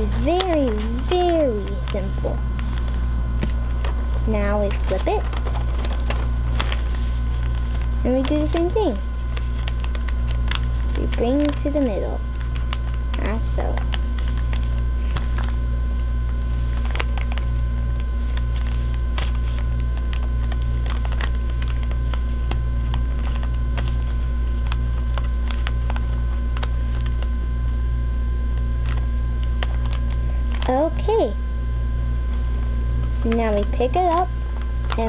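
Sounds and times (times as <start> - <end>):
paper being folded: 0.0 - 15.6, 16.4 - 27.3
low electrical hum: 0.0 - 35.0.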